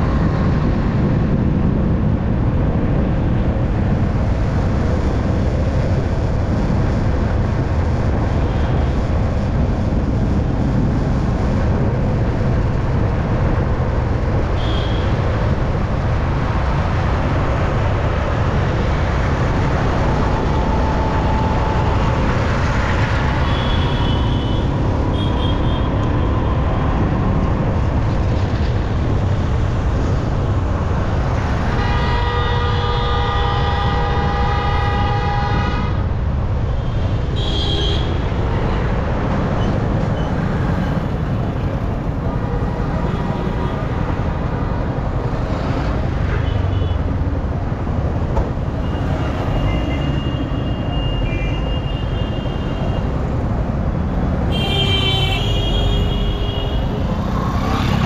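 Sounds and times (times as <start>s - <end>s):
wind: 0.0s - 58.0s
vehicle horn blaring: 31.8s - 35.9s.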